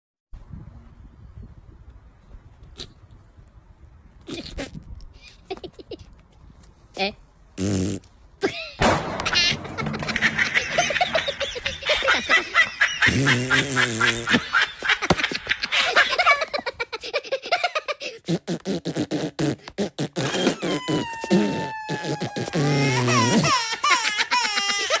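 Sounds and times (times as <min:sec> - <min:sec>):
baby giggling: 0:08.4 - 0:18.3, 0:20.2 - 0:25.0
people laughing: 0:09.6 - 0:17.9.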